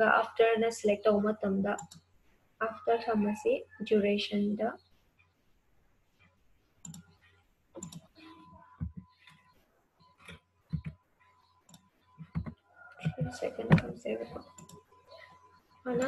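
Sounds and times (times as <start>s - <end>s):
computer mouse clicks: 1.7s - 2.1s, 6.2s - 14.9s.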